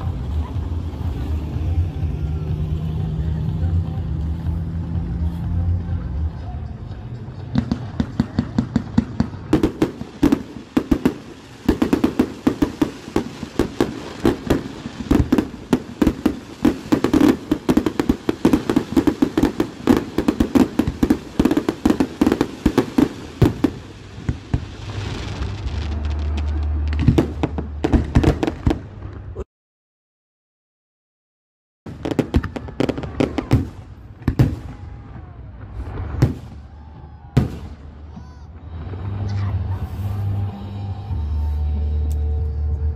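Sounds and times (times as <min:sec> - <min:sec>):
fireworks bangs: 0:07.4 - 0:29.4, 0:31.9 - 0:40.8.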